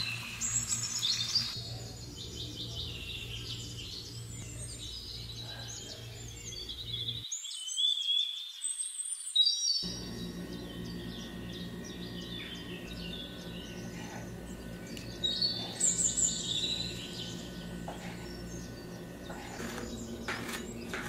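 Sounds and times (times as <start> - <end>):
small birds chirping: 0.0 - 21.0
low steady hum: 9.8 - 21.0.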